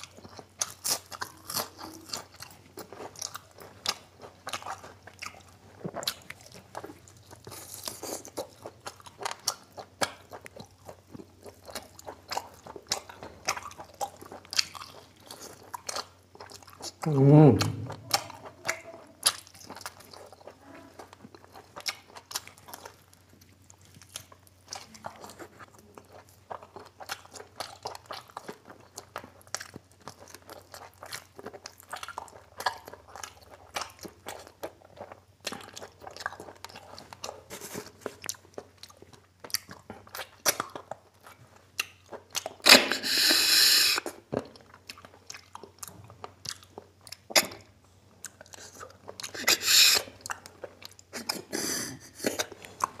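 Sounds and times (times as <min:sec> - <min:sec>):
chewing and crunching: 0:00.0 - 0:53.0
loud sucking noise: 0:42.7 - 0:44.0, 0:49.4 - 0:50.0.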